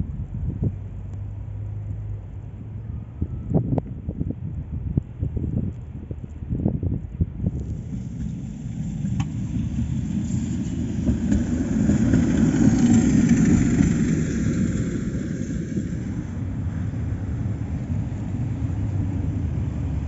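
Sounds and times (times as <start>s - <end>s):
tram rumbling past: 7.3s - 20.0s.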